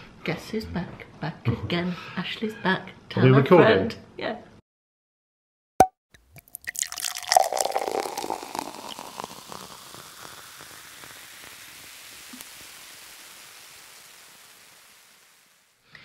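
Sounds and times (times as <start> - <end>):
steady hiss: 7.3 - 15.8.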